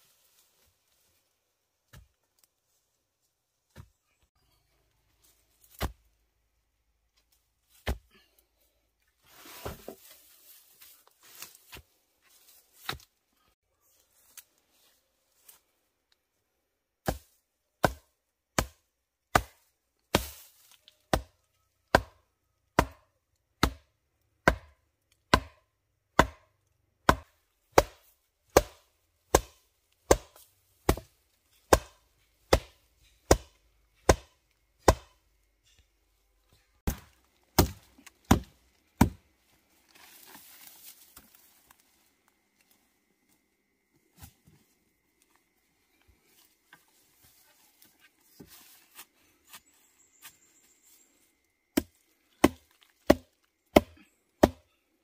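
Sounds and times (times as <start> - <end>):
stakes pounded into ground: 5.7 - 6.0, 31.7 - 35.2, 36.8 - 39.2
brush rustling: 9.2 - 13.2, 36.9 - 43.4, 44.1 - 51.2.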